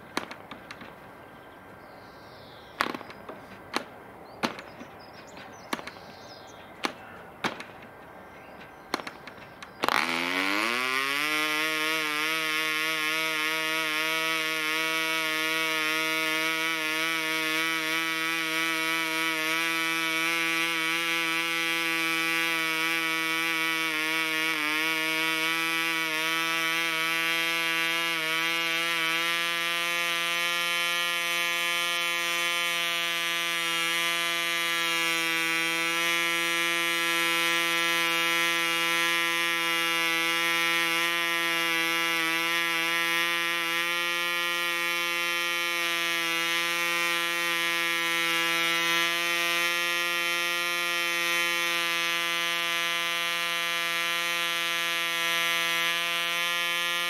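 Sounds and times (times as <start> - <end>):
model engine buzzing: 8.9 - 57.0.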